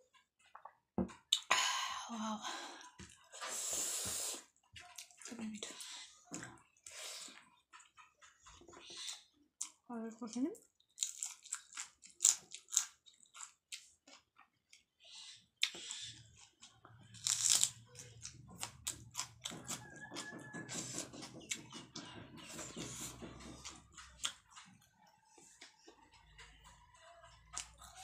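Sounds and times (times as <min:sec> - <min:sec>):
person chewing crisp food: 0:02.8 - 0:09.8, 0:10.6 - 0:28.0
wet mouth clicks: 0:15.6 - 0:16.0.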